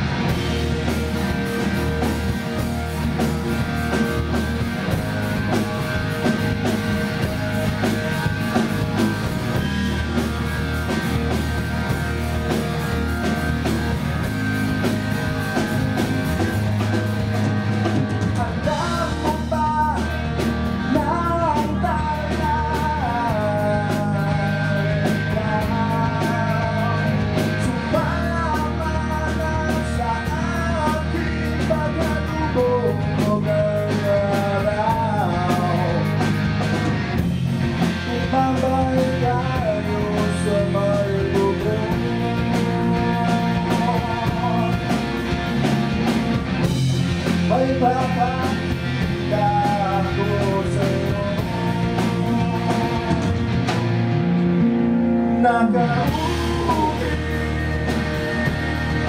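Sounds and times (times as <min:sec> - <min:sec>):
bass guitar: 0:00.0 - 0:59.0
drums: 0:00.0 - 0:59.0
electric guitar: 0:00.0 - 0:59.0
person singing: 0:05.5 - 0:10.1, 0:18.2 - 0:36.2, 0:37.9 - 0:45.2, 0:47.4 - 0:53.8, 0:55.3 - 0:59.0.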